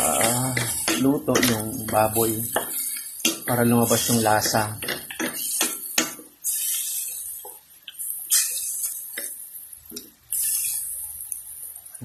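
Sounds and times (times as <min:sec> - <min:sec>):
spatula knocking pan: 0:00.0 - 0:06.3
meat sizzling: 0:00.0 - 0:12.0.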